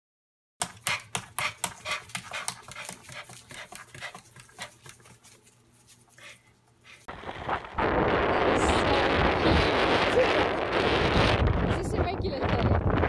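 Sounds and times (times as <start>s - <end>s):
dog panting: 0.8s - 5.4s, 6.0s - 7.1s.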